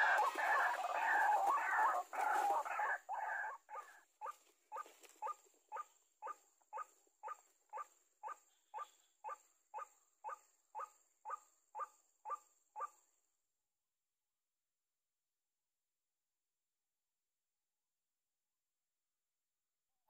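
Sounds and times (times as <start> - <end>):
waterhen harsh calls: 0.0 - 4.0.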